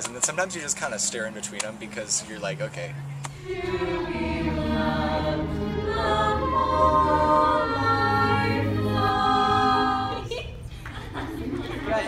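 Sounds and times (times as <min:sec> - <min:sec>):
group singing musical number: 0:03.3 - 0:10.3.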